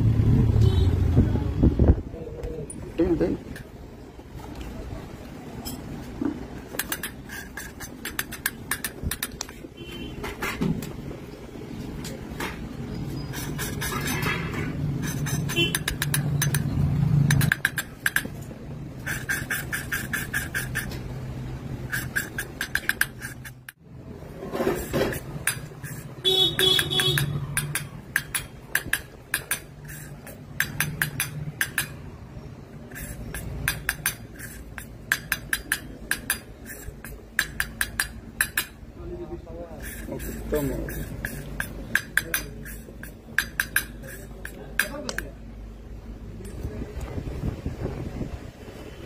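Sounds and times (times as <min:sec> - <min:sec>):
metal tools clinking on metal: 0:05.6 - 0:06.0.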